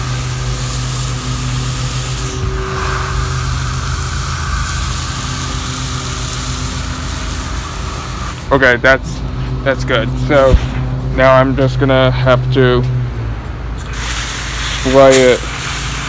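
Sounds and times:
hose nozzle spraying water: 0.0s - 8.5s, 13.8s - 16.0s
steady low hum: 0.0s - 16.0s.

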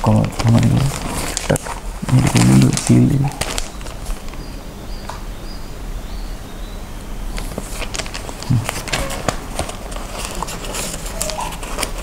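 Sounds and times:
paper envelope tearing: 0.0s - 4.4s, 7.4s - 12.0s.

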